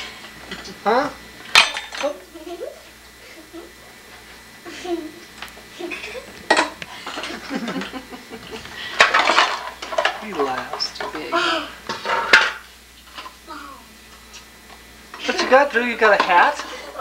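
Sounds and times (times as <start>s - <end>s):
toddler babbling: 13.5s - 13.9s.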